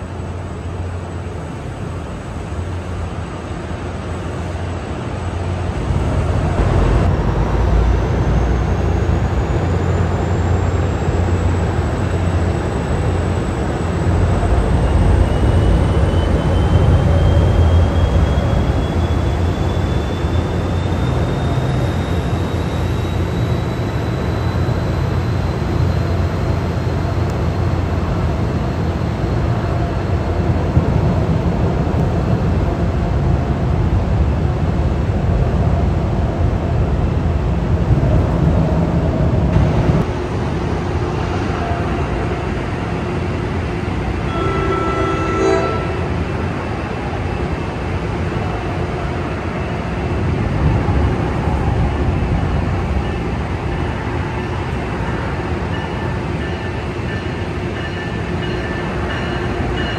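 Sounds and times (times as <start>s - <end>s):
diesel locomotive rumbling: 0.0s - 59.9s
distant train horn blast: 44.2s - 46.2s.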